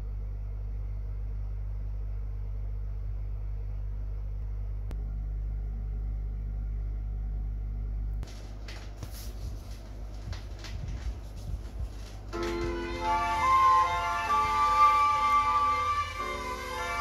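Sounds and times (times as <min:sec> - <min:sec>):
low mains hum: 0:00.0 - 0:17.0
vinyl record crackles: 0:08.2 - 0:12.8.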